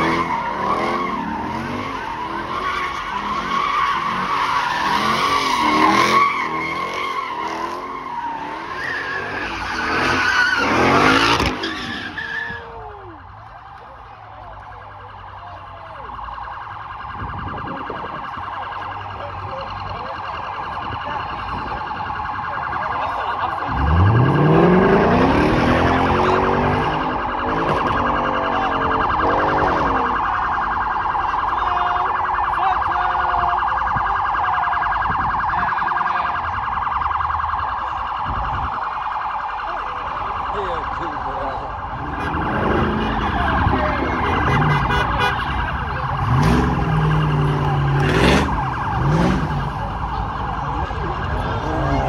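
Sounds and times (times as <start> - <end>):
tyres screeching: 0.0 - 12.8
car engine revving hard: 3.2 - 11.6, 23.7 - 28.0, 46.1 - 49.8.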